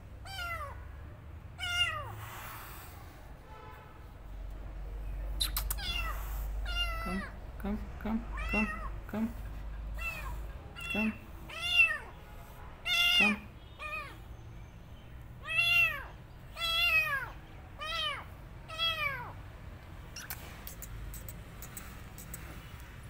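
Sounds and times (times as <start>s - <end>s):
kitten meowing: 0.2s - 0.8s, 1.6s - 2.1s, 5.4s - 7.4s, 8.3s - 8.9s, 10.0s - 12.1s, 12.9s - 14.2s, 15.4s - 19.4s.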